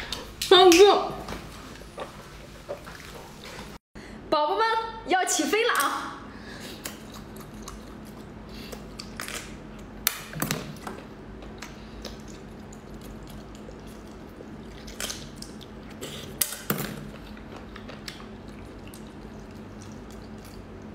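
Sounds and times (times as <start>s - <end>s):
faint steady hum: 0.0s - 20.9s
slurping and chewing: 6.6s - 9.9s, 11.0s - 20.9s.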